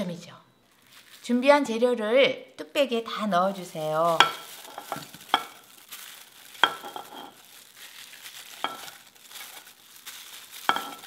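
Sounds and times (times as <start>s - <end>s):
vegetables rustling into pot: 0.7s - 1.6s, 3.6s - 11.0s.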